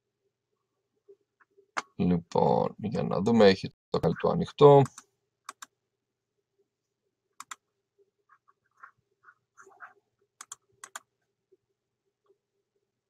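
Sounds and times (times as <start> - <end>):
computer mouse clicks: 4.8 - 5.7, 7.4 - 7.6, 10.4 - 11.1.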